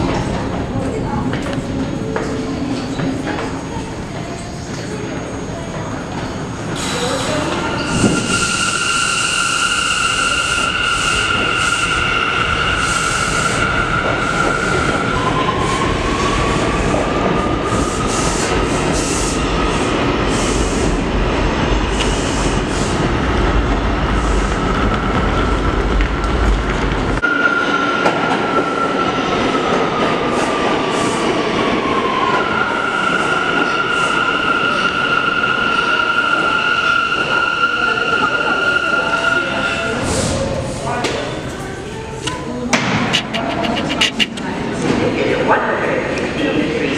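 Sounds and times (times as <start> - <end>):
subway train whine: 0.0 - 46.9.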